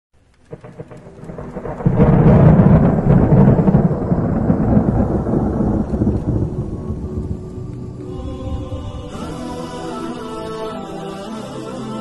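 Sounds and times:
loud deep rumble: 0.5 - 9.6.

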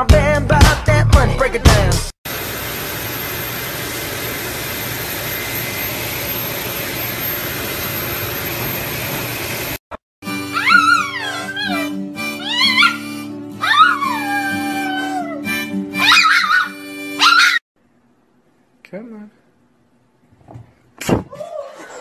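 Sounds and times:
grooming dryer blowing: 2.3 - 9.8.

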